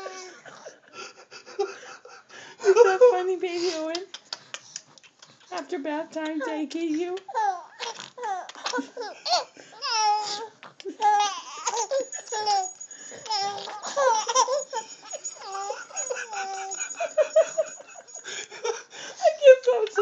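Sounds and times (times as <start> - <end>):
baby laughing and squealing: 7.3 - 18.1.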